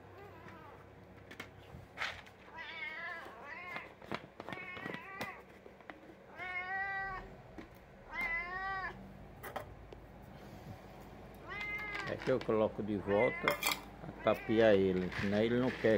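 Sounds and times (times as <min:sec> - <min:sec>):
cat meowing: 0:02.5 - 0:05.4, 0:06.3 - 0:07.4, 0:08.1 - 0:09.0, 0:11.4 - 0:12.3, 0:13.0 - 0:14.9.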